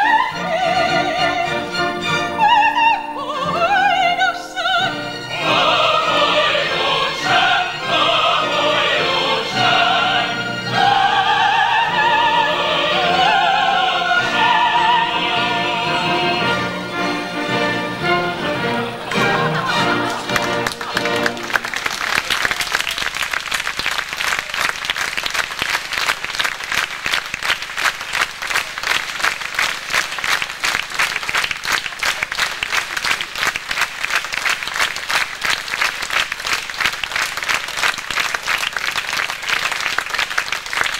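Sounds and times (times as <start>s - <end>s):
audience applauding: 17.9s - 40.9s.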